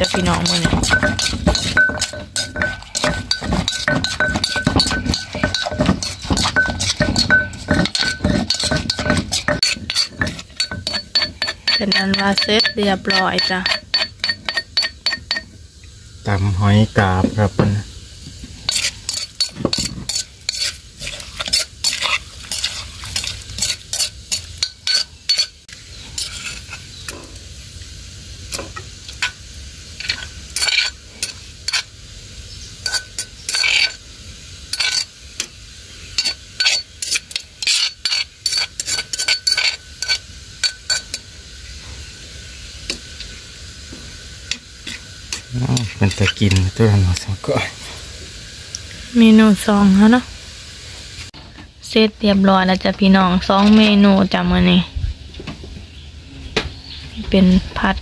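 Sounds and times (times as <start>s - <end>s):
metal spoon scraping a mortar: 0.0s - 15.6s, 18.5s - 27.3s, 30.0s - 31.9s, 32.8s - 34.0s, 34.7s - 35.1s, 36.1s - 41.2s, 44.5s - 47.2s.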